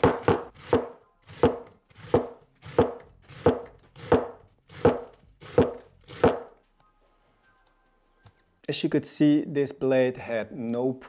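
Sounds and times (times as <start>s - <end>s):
knife slicing cabbage on board: 0.0s - 6.5s.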